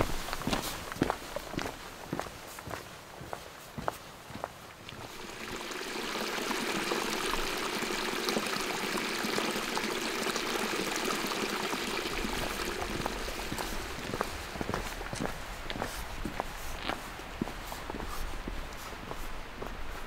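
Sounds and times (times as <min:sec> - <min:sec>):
rushing stream: 0:00.0 - 0:20.0.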